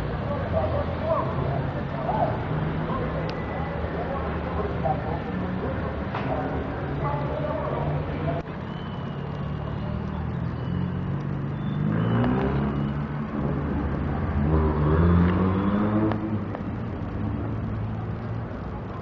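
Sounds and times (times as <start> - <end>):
engine revving: 11.6 - 16.5.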